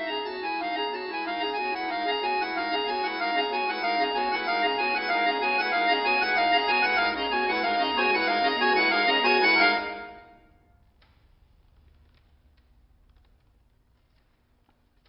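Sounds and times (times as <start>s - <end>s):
accordion duo playing: 0.0s - 10.3s.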